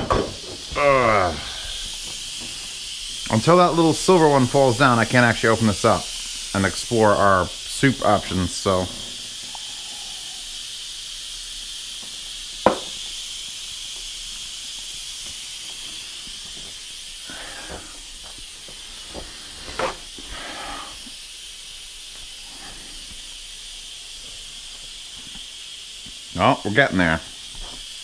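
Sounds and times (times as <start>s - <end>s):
pressure cooker steam hissing: 0.0s - 28.0s.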